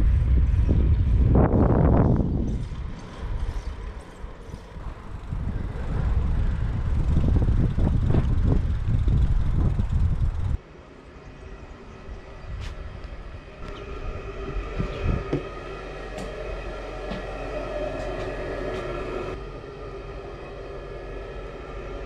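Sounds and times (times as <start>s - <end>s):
wind buffeting microphone: 0.0s - 10.6s, 11.4s - 22.0s
quiet outdoor ambience: 10.6s - 22.0s.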